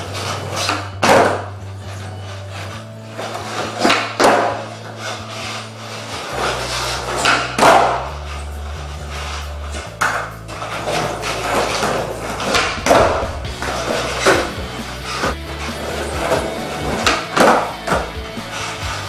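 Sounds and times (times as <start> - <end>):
background music with bass line: 0.0 - 19.0
skateboard knocking on hard floor: 1.0 - 1.5, 3.8 - 4.6, 13.6 - 18.1.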